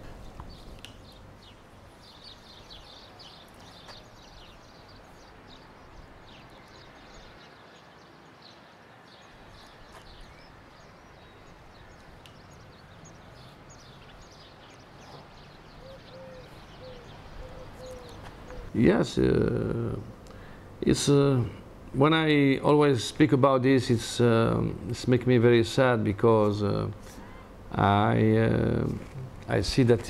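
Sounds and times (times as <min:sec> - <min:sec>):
small birds chirping: 0:00.0 - 0:20.9
steady background noise: 0:00.0 - 0:30.0
dove cooing: 0:15.7 - 0:18.8.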